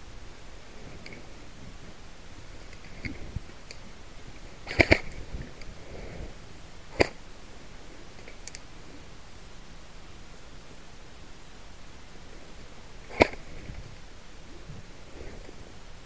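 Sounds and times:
airsoft rifle shots: 4.6 - 5.2, 6.9 - 7.2, 13.1 - 13.5.

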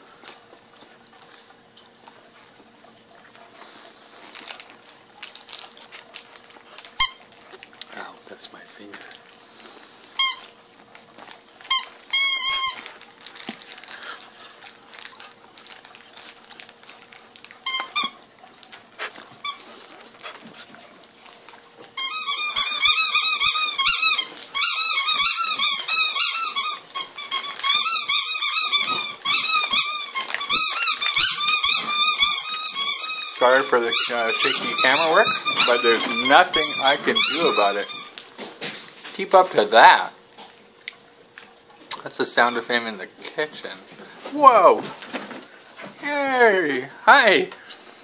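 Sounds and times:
rubber squeaky toy squeaking: 11.7 - 12.8, 17.6 - 18.2, 22.0 - 38.1.

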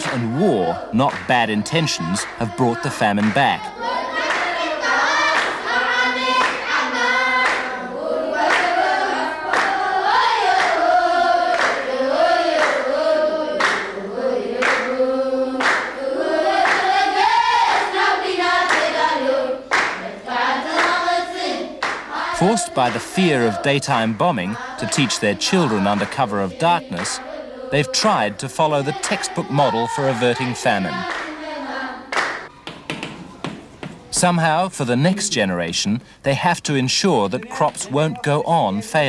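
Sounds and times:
hand claps: 0.0 - 3.5, 4.2 - 4.6, 5.3 - 5.6, 6.4 - 6.6, 7.4 - 7.7, 9.5 - 9.8, 11.5 - 11.8, 12.6 - 12.8, 13.6 - 13.9, 14.6 - 14.9, 15.6 - 16.0, 16.6 - 16.9, 18.7 - 18.9, 19.7 - 20.0, 21.8 - 22.1, 25.8 - 26.3, 27.0 - 27.2, 32.1 - 34.1
group of voices singing: 0.0 - 33.6.

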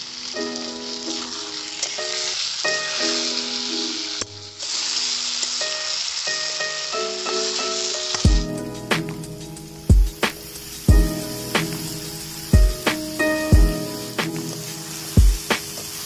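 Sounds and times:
vegetables sizzling in hot oil: 0.0 - 16.0
background music: 5.7 - 16.0.

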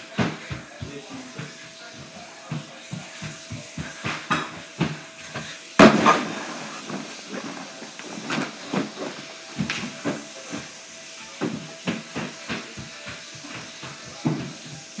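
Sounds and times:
hiss: 0.1 - 15.0
body thudding on floor: 5.8 - 7.1.

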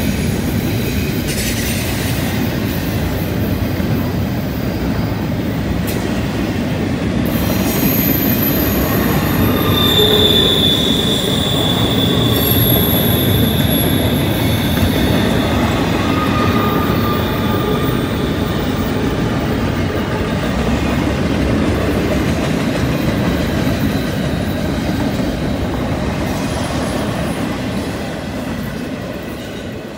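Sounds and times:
steel wheels rumbling on rail: 0.0 - 29.9
high-pitched wheel squeal: 7.4 - 19.0.

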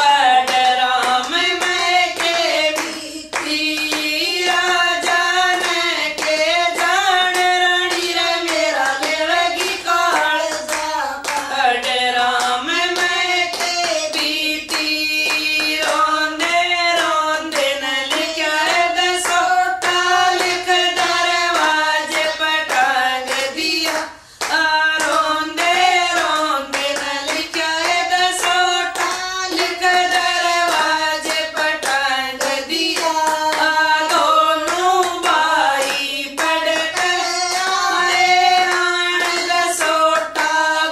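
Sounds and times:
hand-clapping to the beat: 0.0 - 40.9
women singing devotional song: 0.0 - 40.9.

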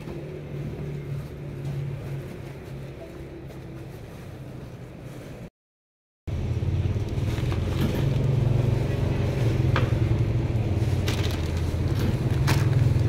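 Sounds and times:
packaged goods clicking on metal counter: 11.0 - 13.0.

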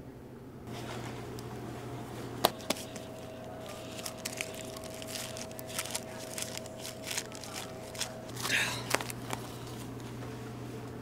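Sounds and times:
steady hum: 0.0 - 11.0
paper crinkling and rustling: 2.5 - 10.2.

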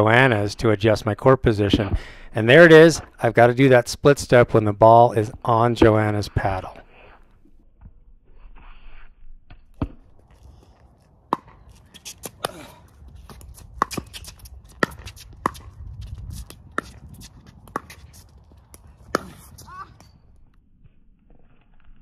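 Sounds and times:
ball bouncing: 5.8 - 6.0, 9.5 - 10.4, 11.3 - 20.2
shoes on hard court: 9.6 - 20.2.

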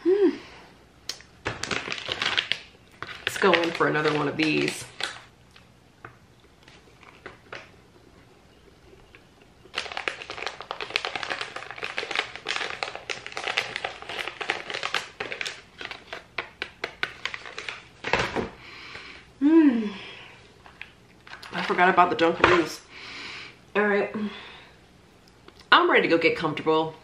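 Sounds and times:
food packaging crinkling: 1.1 - 7.9, 8.9 - 18.6, 20.5 - 22.8.

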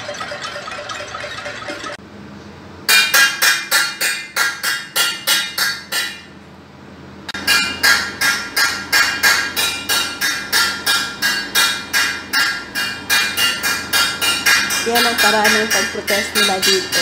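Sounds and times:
metal pot being beaten: 7.4 - 17.0.

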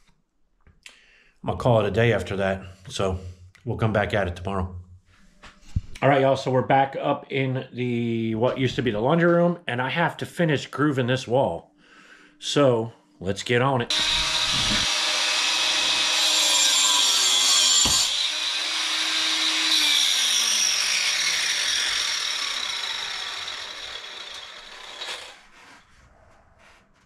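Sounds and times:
grinder spinning down: 13.9 - 25.6
angle grinder cutting into wall: 13.9 - 25.8.

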